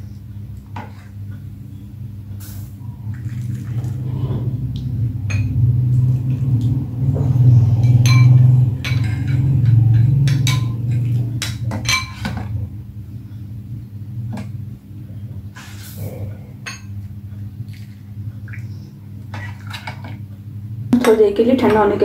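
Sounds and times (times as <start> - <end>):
low steady hum: 0.0 - 22.0
metal spoon clinking glass bowl: 7.8 - 12.3.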